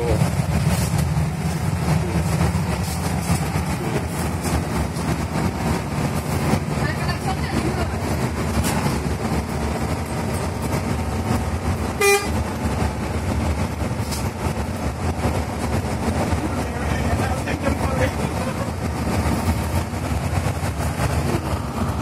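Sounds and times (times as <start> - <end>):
bus engine and road noise: 0.0 - 22.0
bus horn toot: 11.9 - 12.5.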